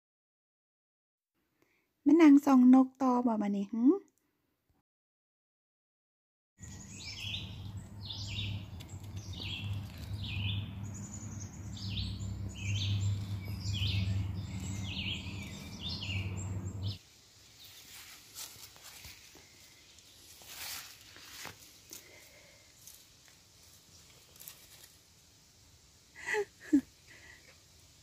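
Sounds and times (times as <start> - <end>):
songbirds chirping: 6.6 - 28.0
low hum: 6.8 - 17.0
faint rustles and clicks: 17.6 - 25.1.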